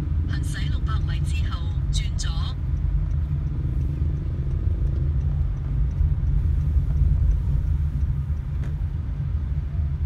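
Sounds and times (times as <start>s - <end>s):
car engine and road noise: 0.0s - 10.0s.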